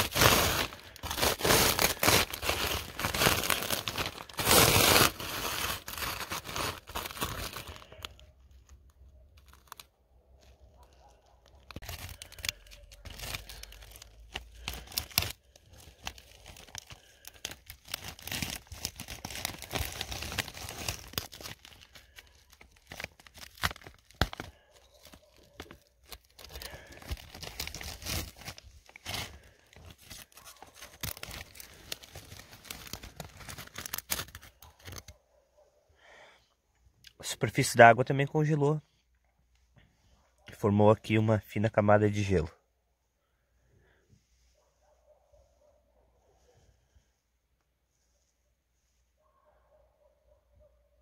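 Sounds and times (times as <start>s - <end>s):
scraper scraping ice: 0.0s - 7.8s
ice crackling: 0.0s - 35.1s.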